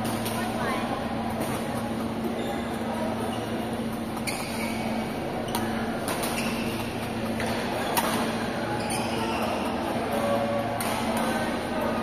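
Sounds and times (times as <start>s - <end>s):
shuttlecock struck by racquets: 5.5s - 8.4s.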